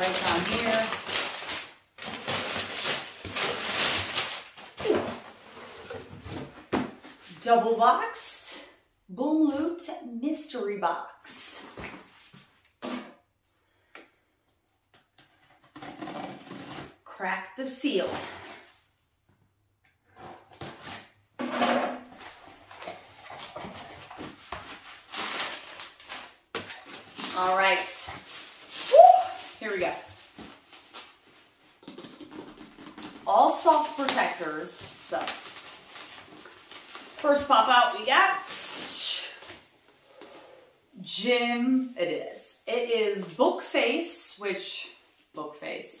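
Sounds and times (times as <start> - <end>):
packing tape ripping: 0.0 - 5.1, 24.7 - 27.7
cardboard and paper rustling: 0.0 - 7.4, 22.1 - 40.3.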